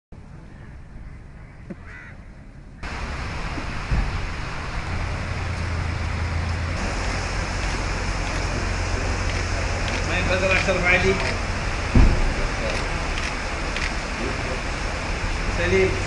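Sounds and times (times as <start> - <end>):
steady rushing noise with low hum: 0.2 - 16.0
single thump: 3.9 - 4.2, 11.9 - 12.4.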